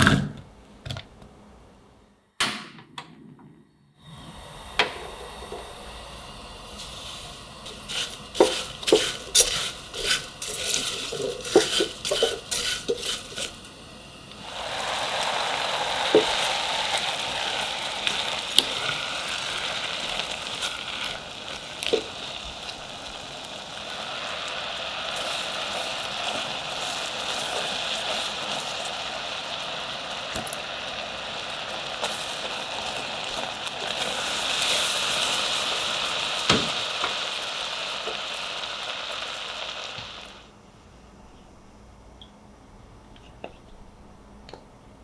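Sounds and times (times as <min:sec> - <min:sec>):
fruit simmering bubbling sizzle: 0:04.0 - 0:40.6
spatula scraping saucepan: 0:07.7 - 0:13.6.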